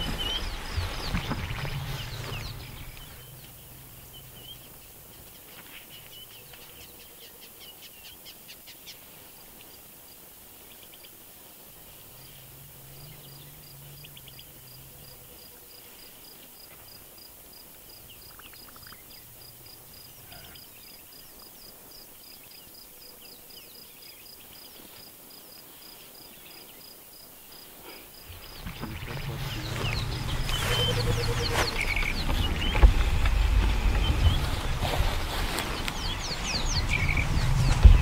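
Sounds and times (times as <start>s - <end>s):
insect chirping: 0.0s - 38.0s
short bird calls: 27.8s - 33.2s.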